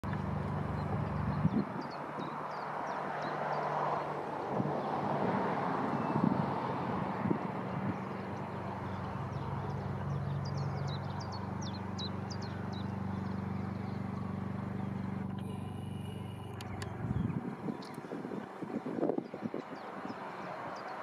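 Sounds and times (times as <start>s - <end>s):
distant diesel train drone: 0.0s - 21.0s
bird chirping: 0.7s - 4.1s, 7.7s - 21.0s.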